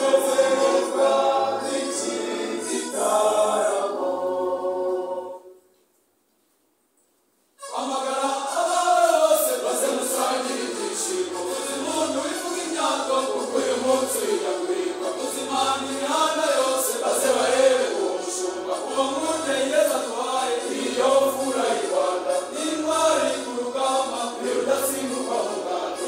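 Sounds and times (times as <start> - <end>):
male choir singing: 0.0 - 5.6, 7.6 - 26.0.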